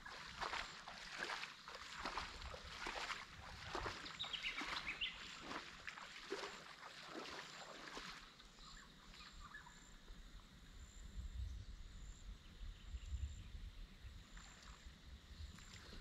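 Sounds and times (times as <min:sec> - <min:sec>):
water sloshing and splashing: 0:00.0 - 0:09.2
wind rumble on microphone: 0:02.0 - 0:05.6, 0:10.3 - 0:16.0.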